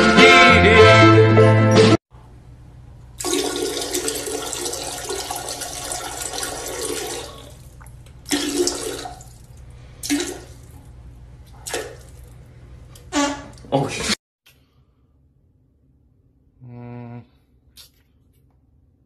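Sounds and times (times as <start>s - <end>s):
toilet flushing: 3.2s - 10.9s.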